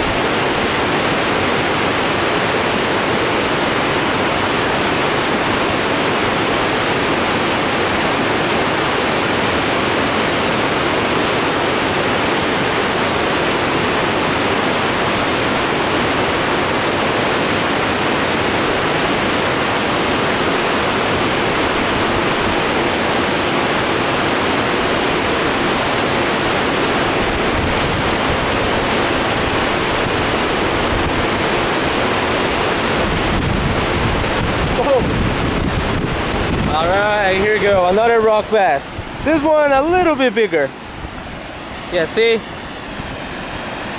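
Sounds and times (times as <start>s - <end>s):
creek water rushing through rapids: 0.0s - 43.9s.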